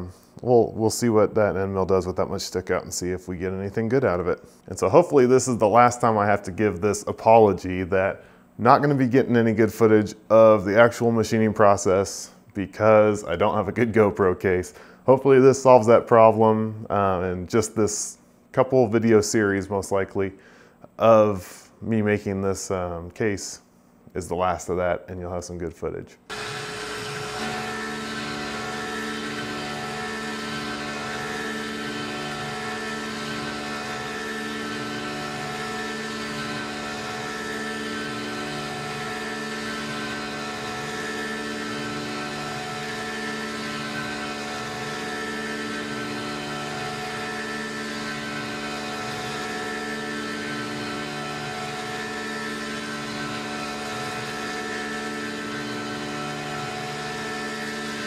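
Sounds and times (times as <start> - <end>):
milling machine cutting metal: 26.3 - 58.0.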